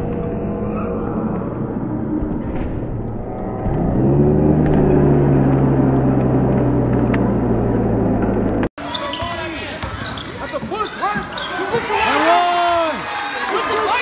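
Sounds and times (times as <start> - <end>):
gymnasium crowd noise: 8.8 - 14.0.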